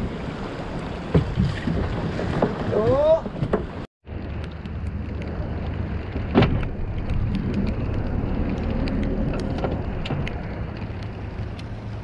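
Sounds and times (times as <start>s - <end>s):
boat low rumble: 0.0s - 12.0s.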